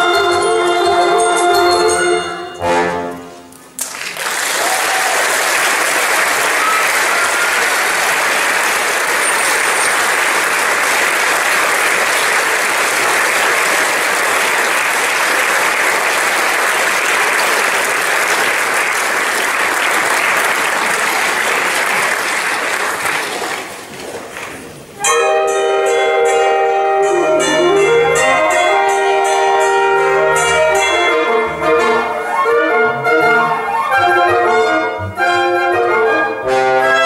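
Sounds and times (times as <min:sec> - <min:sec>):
music: 0:00.0 - 0:03.8, 0:25.0 - 0:37.0
audience applause: 0:03.8 - 0:24.9.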